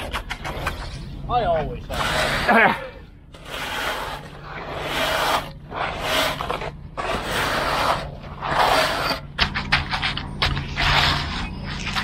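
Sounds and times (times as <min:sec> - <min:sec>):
sharp clicks and knocks: 0:00.0 - 0:00.9
metal straightedge scraping concrete: 0:01.8 - 0:12.0.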